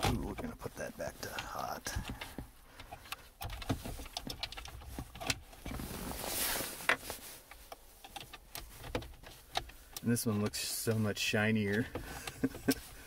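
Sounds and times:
rustle: 3.7 - 10.0.

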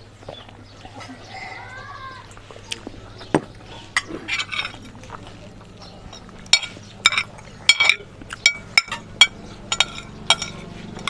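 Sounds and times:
cutlery clinking on ceramic plate: 6.1 - 10.7.

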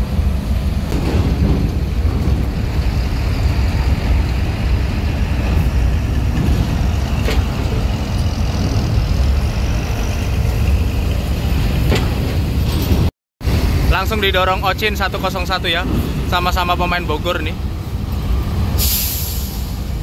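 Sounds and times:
bus diesel engine rumbling: 0.0 - 20.0.

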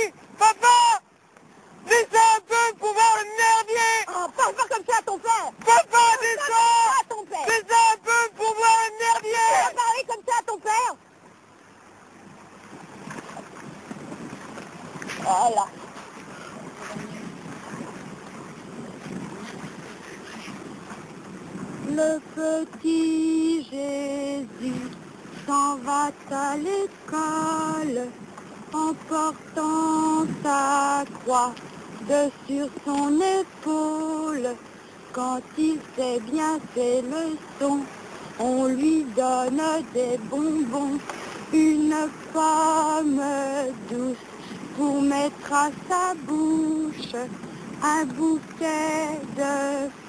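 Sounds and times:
wind noise: 12.2 - 33.9, 36.3 - 50.0
woman singing: 21.9 - 50.0.

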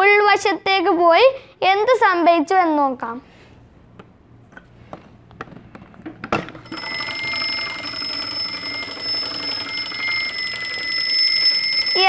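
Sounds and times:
door alarm bell ringing: 6.6 - 12.0.

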